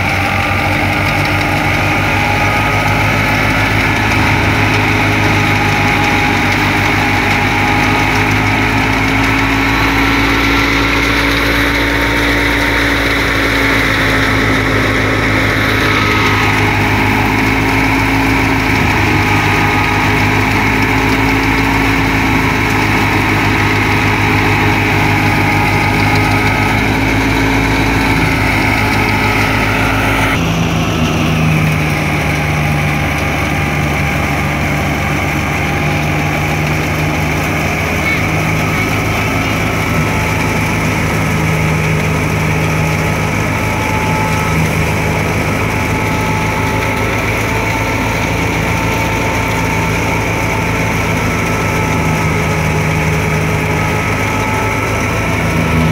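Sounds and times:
thresher and tractor engine drone: 0.0 - 55.9.

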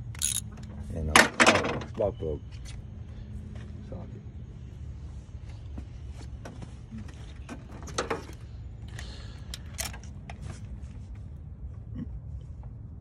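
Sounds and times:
socket ratchet and tools clicking: 0.0 - 0.5.

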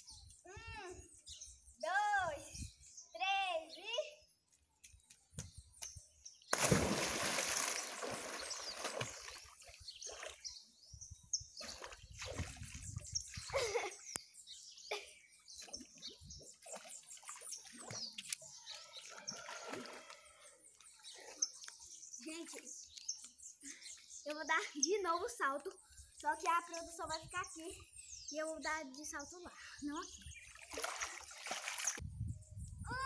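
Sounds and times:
child jumping into pool splash: 6.5 - 9.5
swimming stroke splashes: 6.5 - 10.4
water sloshing: 6.5 - 10.5, 30.4 - 32.0.

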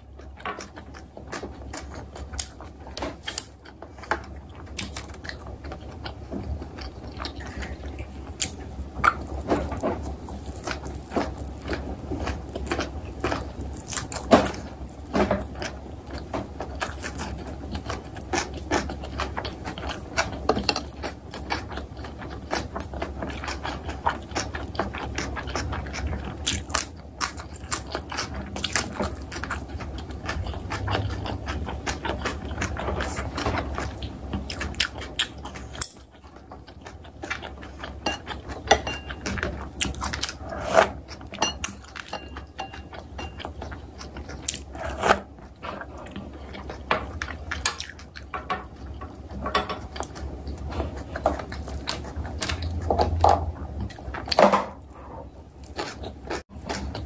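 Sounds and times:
chewing and mouth sounds: 0.0 - 57.0
steady low hum: 0.0 - 57.0
utensils clicking against bowls: 41.4 - 43.5.

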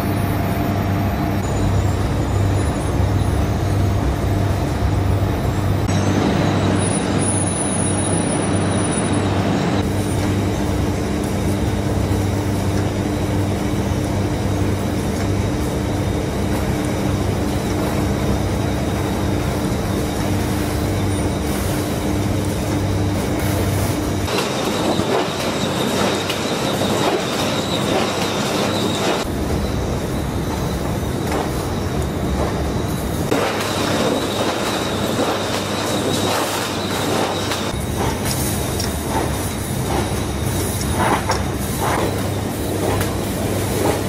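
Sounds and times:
machine hum: 0.0 - 44.0
thin high whine: 5.4 - 10.0
conveyor metallic clatter: 16.4 - 44.0.

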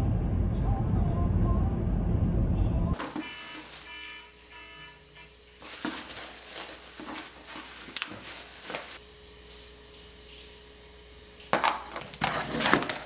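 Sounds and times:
plastic bags rustling: 3.0 - 4.0, 5.6 - 9.0.

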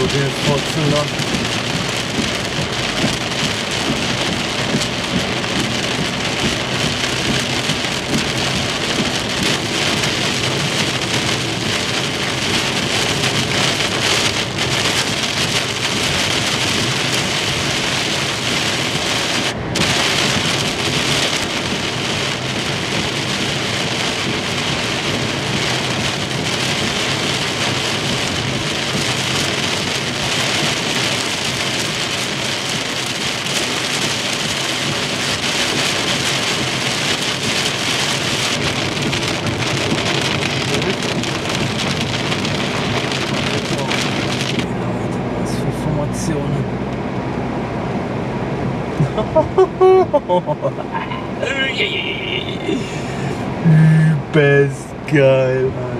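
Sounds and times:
tyre spray on wet road: 0.0 - 45.2
heavy rain on car roof: 0.0 - 55.9.

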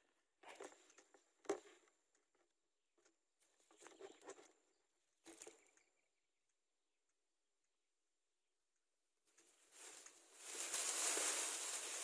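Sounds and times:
rustling of dry grass: 9.3 - 12.0.

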